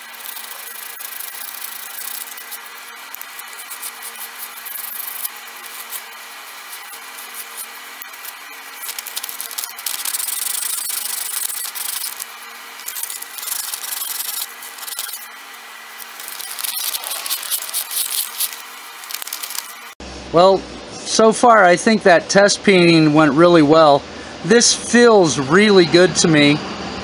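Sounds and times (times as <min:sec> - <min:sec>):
scratchy rubbing on wood: 0:00.0 - 0:15.2, 0:16.0 - 0:19.7.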